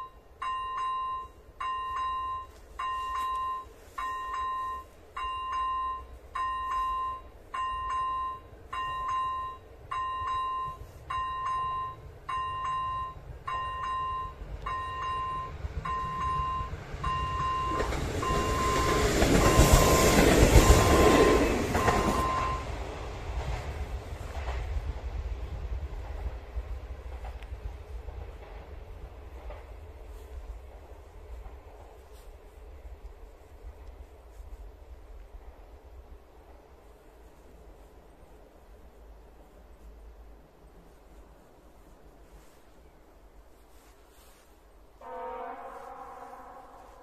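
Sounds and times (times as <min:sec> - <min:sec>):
level crossing bell ringing: 0:00.0 - 0:22.7
railcar rumbling past: 0:00.0 - 0:47.0.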